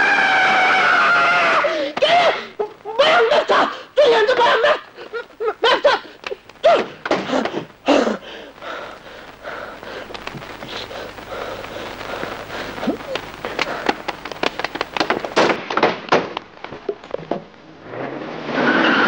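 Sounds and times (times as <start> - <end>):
high sustained scream: 0.0 - 2.5
hysterical laugh-like outbursts: 0.1 - 8.2.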